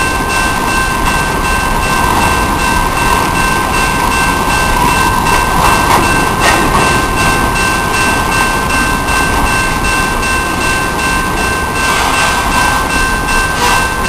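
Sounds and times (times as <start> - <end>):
freight train rumble: 0.0 - 14.0.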